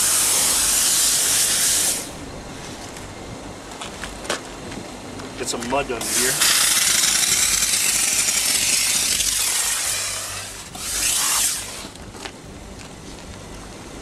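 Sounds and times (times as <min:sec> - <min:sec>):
hissing jet of steam: 0:00.0 - 0:02.1, 0:06.0 - 0:11.9.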